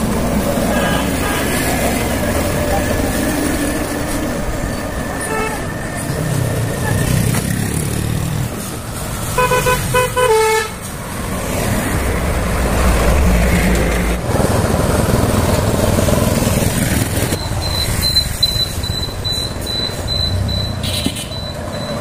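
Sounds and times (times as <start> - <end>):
road traffic rumble: 0.0 - 22.0
vehicle horn tooting: 5.2 - 5.6, 9.4 - 10.8
high-pitched beeping: 17.4 - 22.0.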